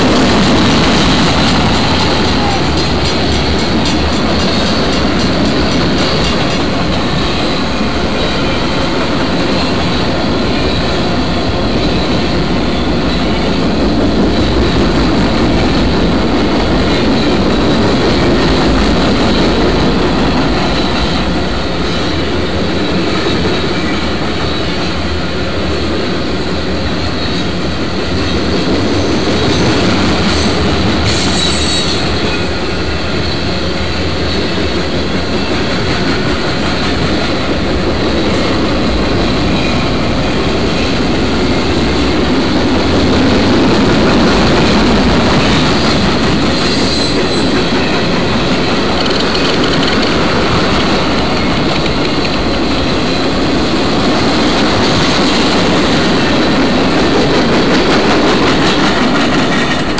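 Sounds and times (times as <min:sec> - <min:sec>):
train wheels rumbling and rattling: 0:00.0 - 0:59.9
high wheel squeals: 0:31.1 - 0:33.6.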